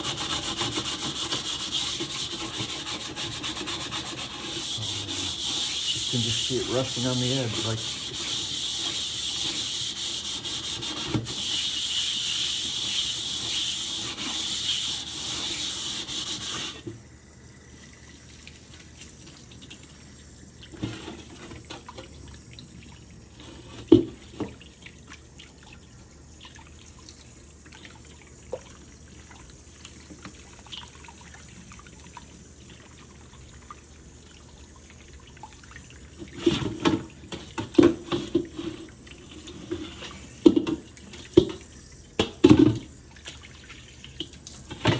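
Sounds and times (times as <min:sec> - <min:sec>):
scrubbing inside a steel wok: 0:00.0 - 0:16.9
tap water running: 0:00.0 - 0:44.9.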